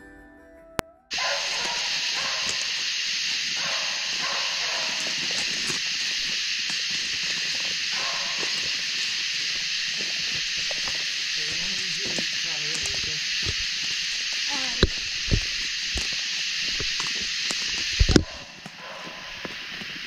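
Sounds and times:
dogs baying in the distance: 1.1 - 19.9
night insects chorus: 1.1 - 20.0.

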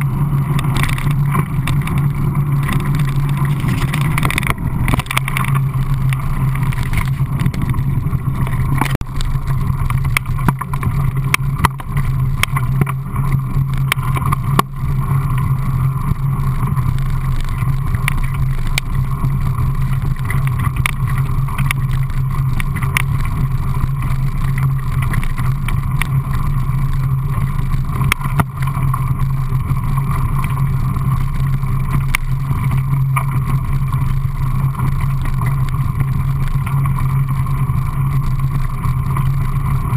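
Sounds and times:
bike clicks and knocks: 0.0 - 39.9
bike tyres rumbling on gravel: 0.0 - 39.9.

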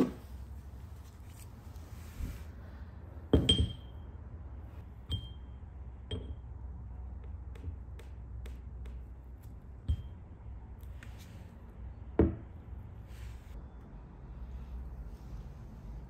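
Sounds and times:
metal ringing clinks: 3.4 - 4.0, 5.1 - 6.4.

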